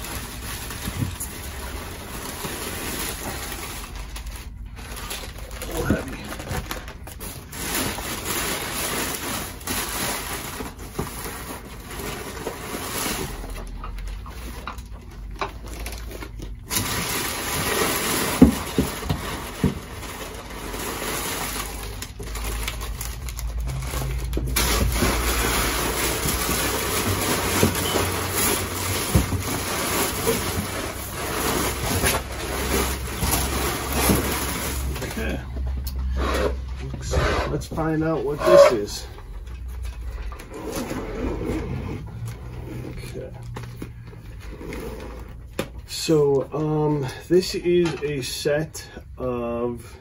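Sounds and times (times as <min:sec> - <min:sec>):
packing paper rustling: 0:00.0 - 0:36.7, 0:37.8 - 0:47.8.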